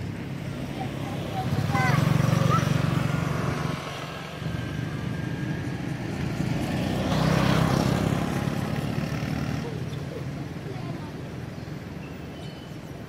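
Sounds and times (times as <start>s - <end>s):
vehicle engine droning: 0.0s - 12.0s.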